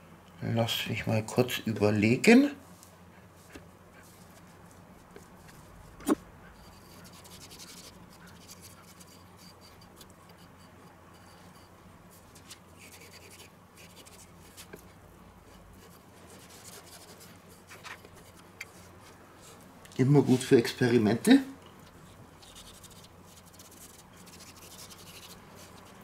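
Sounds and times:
knife scraping wooden board: 6.0s - 11.7s.

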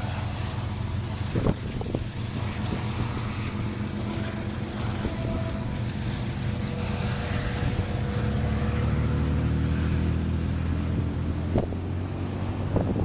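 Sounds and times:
diesel locomotive engines droning: 0.0s - 13.0s.

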